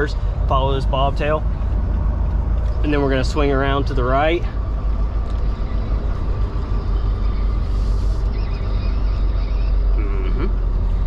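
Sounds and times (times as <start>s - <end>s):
diesel truck engine running: 0.0s - 11.0s
air hiss: 7.6s - 8.3s.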